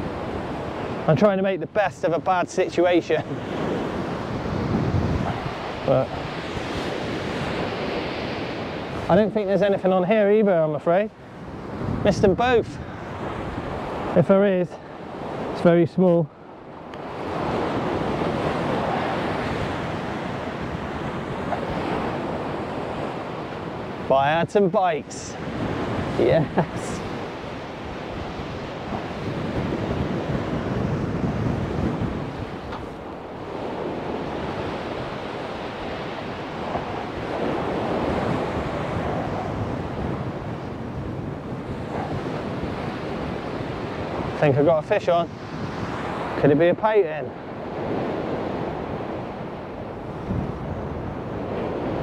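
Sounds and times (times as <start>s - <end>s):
wind buffeting the microphone: 0.0s - 52.0s
sea surf breaking on shingle: 17.0s - 49.1s.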